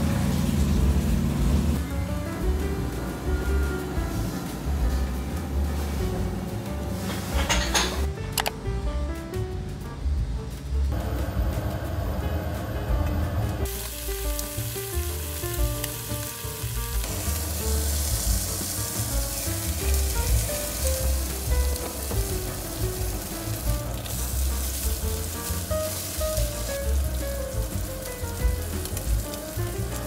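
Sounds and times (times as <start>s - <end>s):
pork sizzling in hot pan: 2.5s - 8.1s, 13.6s - 30.0s.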